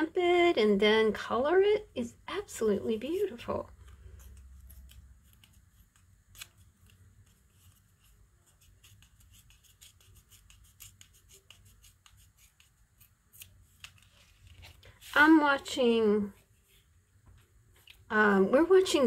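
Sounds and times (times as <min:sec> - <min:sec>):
paper clicks and rustles: 0:03.8 - 0:12.7.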